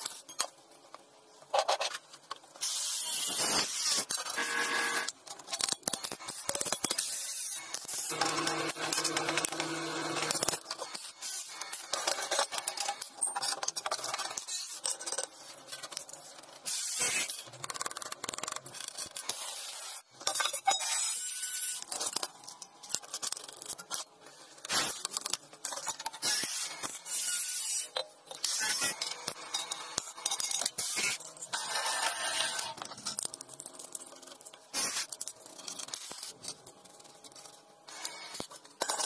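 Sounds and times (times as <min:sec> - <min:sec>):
arc welding crackling: 0:02.6 - 0:05.2, 0:32.5 - 0:36.4.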